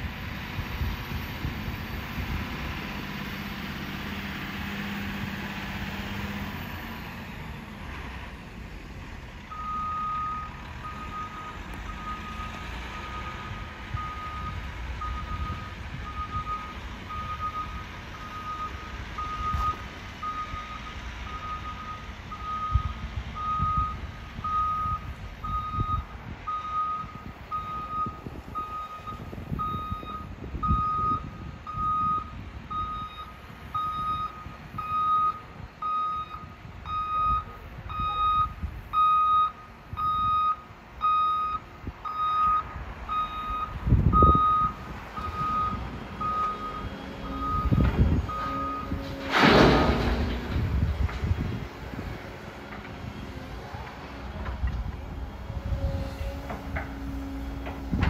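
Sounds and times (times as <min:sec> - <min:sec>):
diesel engine rumble: 0:00.0 - 0:58.0
backup alarm beeping: 0:09.5 - 0:49.0.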